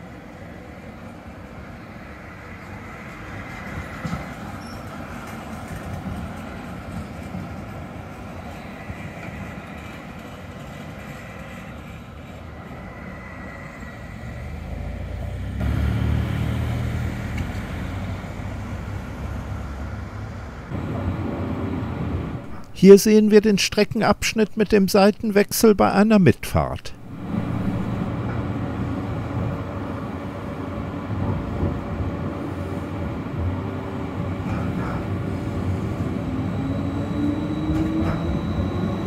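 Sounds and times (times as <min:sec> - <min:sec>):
tram rolling on rails: 0:00.0 - 0:24.6, 0:26.9 - 0:39.0
tram wheel squeal: 0:02.5 - 0:15.0, 0:20.8 - 0:22.9, 0:32.4 - 0:39.0.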